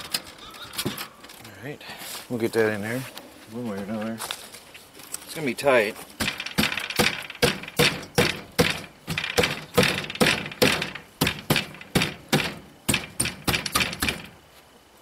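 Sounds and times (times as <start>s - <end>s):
wooden thunks: 6.2s - 14.4s.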